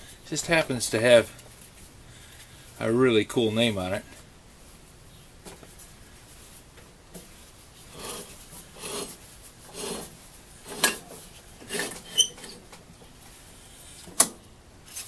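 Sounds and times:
flywheel rasping rub: 0:07.8 - 0:12.6.

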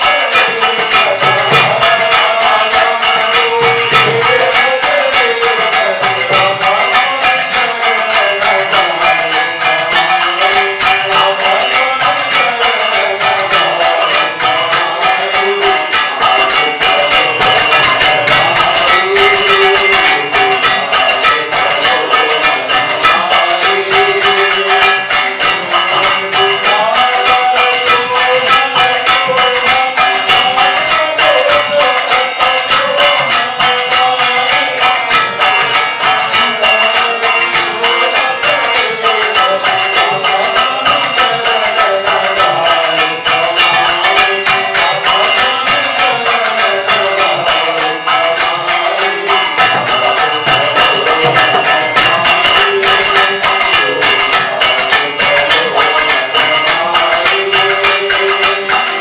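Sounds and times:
jingling hand percussion: 0:00.0 - 0:59.0
man singing devotional song: 0:00.0 - 0:59.0
barrel drum: 0:49.2 - 0:52.9.

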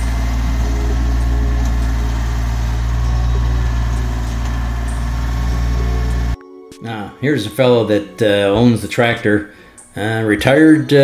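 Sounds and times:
tractor engine running: 0:00.0 - 0:06.4.

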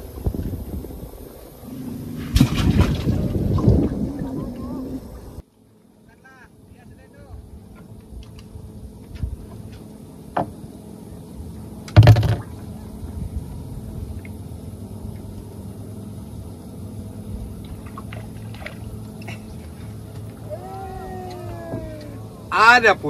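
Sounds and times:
water lapping against metal hull: 0:01.5 - 0:05.4, 0:11.9 - 0:15.6, 0:17.3 - 0:20.6
loud knock on boat: 0:12.0 - 0:12.6.

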